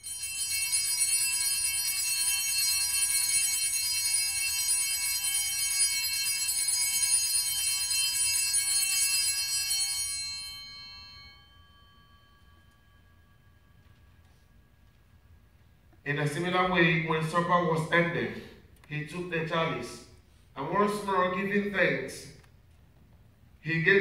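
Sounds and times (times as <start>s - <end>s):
altar bells ringing: 0.0s - 15.6s.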